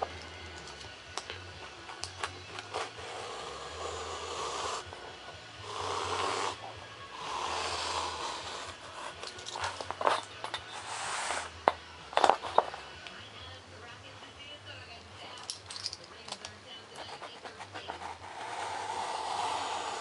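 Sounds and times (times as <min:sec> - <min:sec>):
razor blade cutting foam board: 0:07.2 - 0:09.1, 0:17.2 - 0:20.0.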